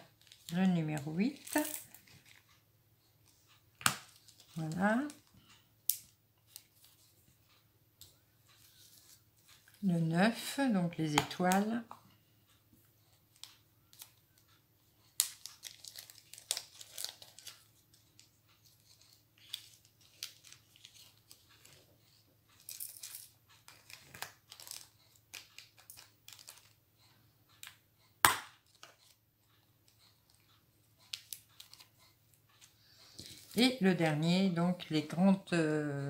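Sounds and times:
plastic bag crinkling: 0:15.2 - 0:17.7.

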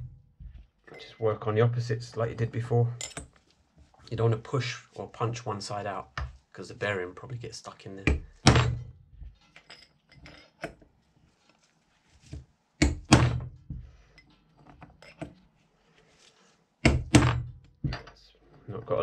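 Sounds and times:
hammer knocking on metal punch: 0:08.1 - 0:08.9, 0:12.8 - 0:13.8, 0:16.8 - 0:18.1
faint metal clinks: 0:09.4 - 0:10.7.

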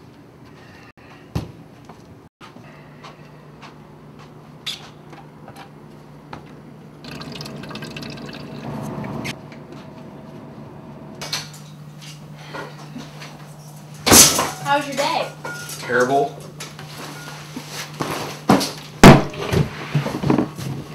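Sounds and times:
steady low hum: 0:00.3 - 0:20.9
water pouring into plastic bottle: 0:07.1 - 0:08.8.

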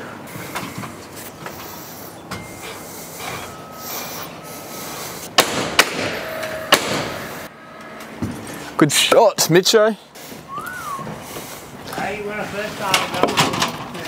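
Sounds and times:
sharp wooden knocks: 0:05.4 - 0:07.1.

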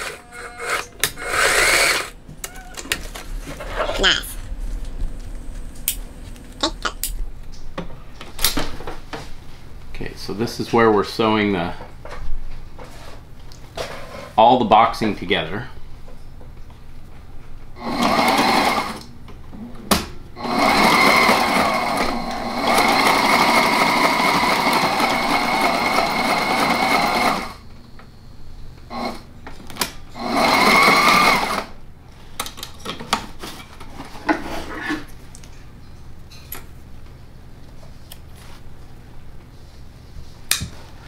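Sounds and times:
sewing machine stitching: 0:00.0 - 0:02.1, 0:17.8 - 0:19.0, 0:20.4 - 0:27.6, 0:30.2 - 0:31.7.

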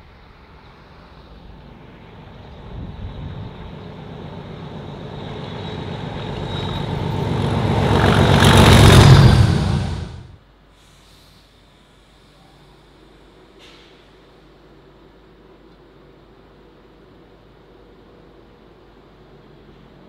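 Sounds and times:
locomotive engine rumble: 0:00.0 - 0:10.4.

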